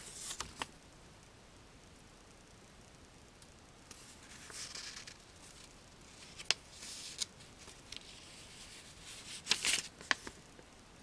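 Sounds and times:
paper pages rustling: 0:00.0 - 0:00.7, 0:04.0 - 0:10.4.

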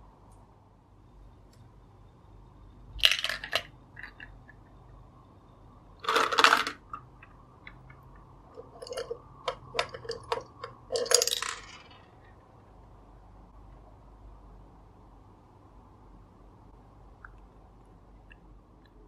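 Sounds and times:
candy ball rattling into tray: 0:06.0 - 0:06.9, 0:08.6 - 0:12.1.

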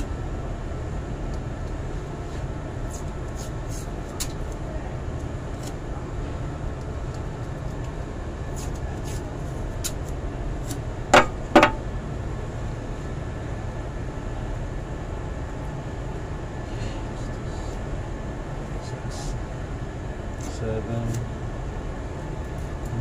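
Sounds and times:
low rumble of machinery: 0:00.0 - 0:23.0
sharp knocks: 0:11.1 - 0:11.8.

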